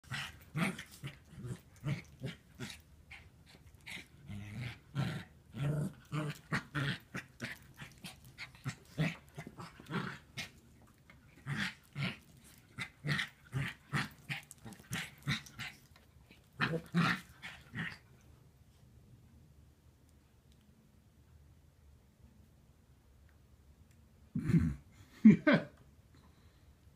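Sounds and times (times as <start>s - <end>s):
puppies growling and yipping: 0.0s - 10.6s, 11.4s - 15.9s.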